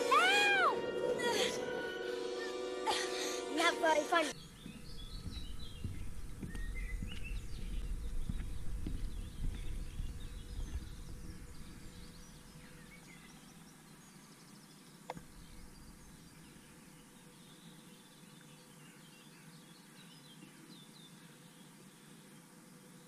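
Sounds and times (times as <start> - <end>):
small birds chirping: 3.6 - 23.0
low thuds: 4.4 - 12.8
low rumble: 4.4 - 13.1.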